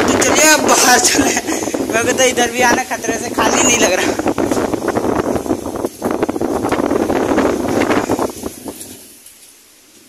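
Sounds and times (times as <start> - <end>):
storm wind buffeting microphone: 0.0 - 10.0.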